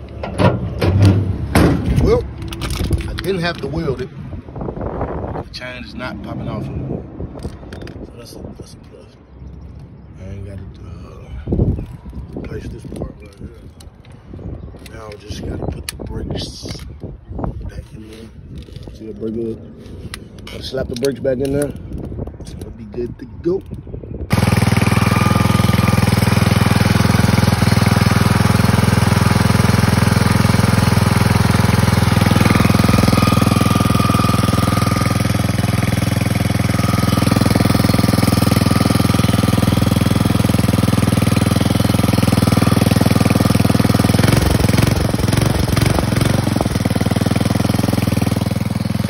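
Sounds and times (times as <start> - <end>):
go-kart engine running: 24.3 - 49.0.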